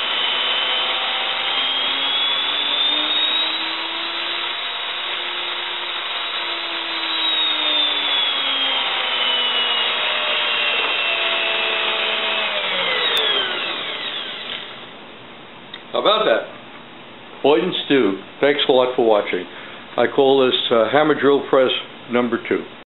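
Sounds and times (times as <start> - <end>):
drill boring into wood: 0.0 - 14.9
drill motor winding down: 0.0 - 14.9.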